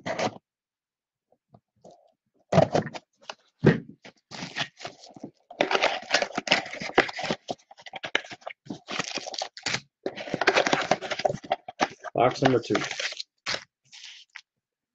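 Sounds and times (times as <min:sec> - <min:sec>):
plastic shrink wrap tearing: 0:04.3 - 0:14.4.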